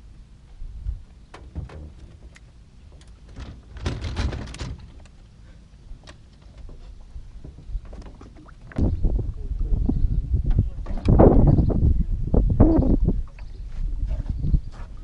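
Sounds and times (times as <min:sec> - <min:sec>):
gear handling in aluminum boat: 0:00.8 - 0:08.8
light clicks and knocks: 0:01.3 - 0:05.2
low rumble: 0:08.8 - 0:14.6.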